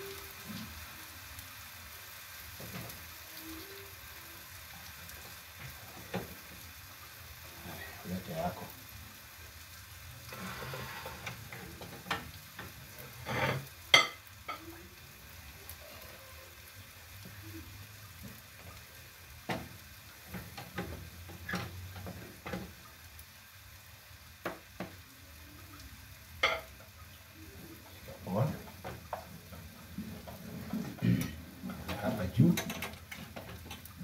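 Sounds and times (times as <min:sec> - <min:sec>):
faint sizzle of frying: 0:00.0 - 0:34.0
wooden spoon scraping metal pot: 0:13.1 - 0:13.7.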